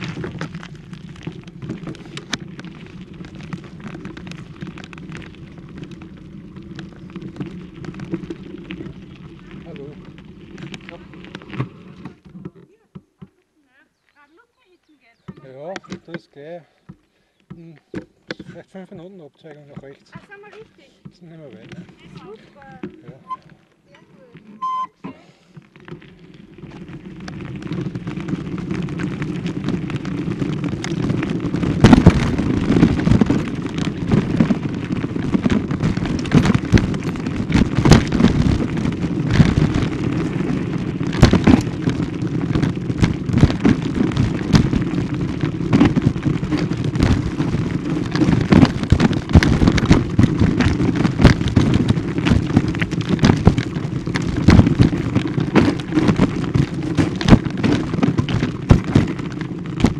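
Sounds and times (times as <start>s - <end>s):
rumble and rattle over gravel track: 0.0s - 16.8s, 17.6s - 59.9s
sharp knocks and jolts: 27.2s - 59.9s.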